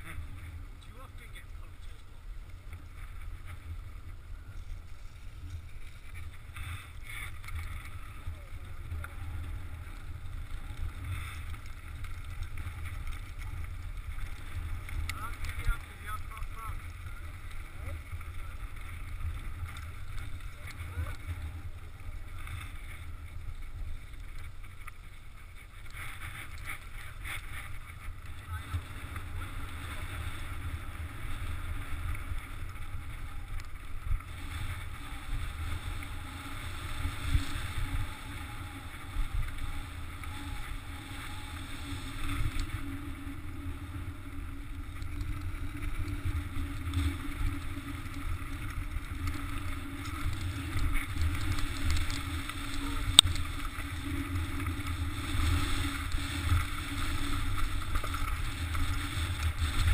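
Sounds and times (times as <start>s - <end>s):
wind buffeting microphone: 26.0s - 59.9s.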